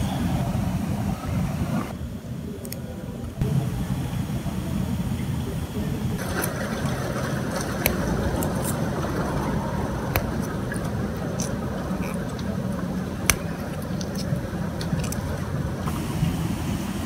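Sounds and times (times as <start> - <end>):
low outdoor rumble: 0.0 - 17.0
soil clicks and crackles: 6.2 - 16.0.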